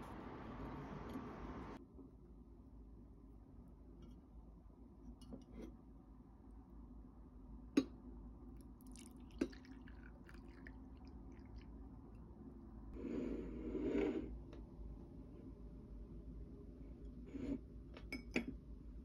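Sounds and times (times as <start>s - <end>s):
coffee trickling into cup: 8.6s - 12.2s.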